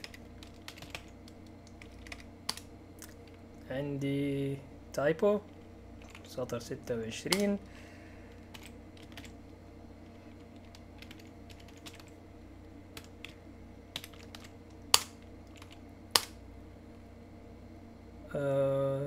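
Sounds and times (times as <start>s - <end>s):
computer keyboard keystrokes: 0.0s - 3.4s, 6.0s - 6.6s, 7.3s - 7.5s, 8.5s - 9.4s, 10.3s - 12.1s, 13.0s - 16.4s.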